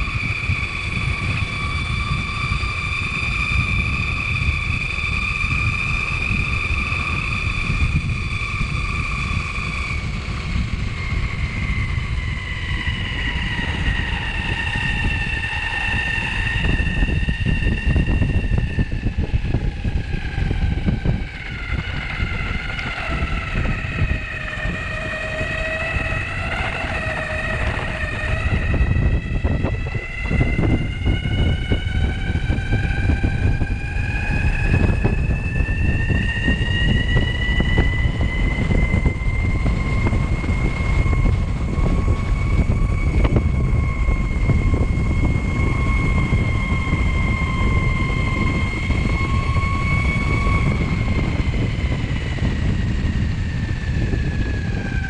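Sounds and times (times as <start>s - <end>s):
electric skateboard motor whine: 0.0s - 55.0s
wheels rumbling on road: 0.0s - 55.0s.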